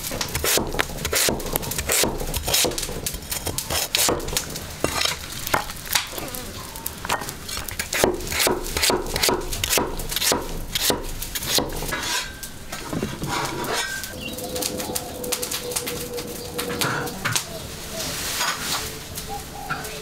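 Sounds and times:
metal spatula scraping a wok: 4.8s - 5.5s, 7.2s - 14.2s.

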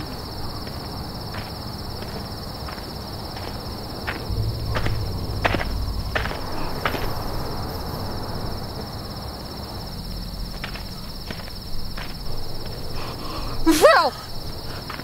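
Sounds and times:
crickets trilling: 0.0s - 15.0s
low rumble: 3.9s - 13.7s
sharp knocks: 4.3s - 8.1s.

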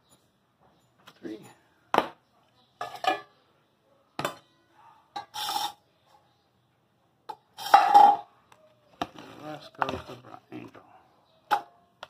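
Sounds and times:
utensil scraping metal bowl: 5.2s - 5.8s, 7.5s - 8.2s.

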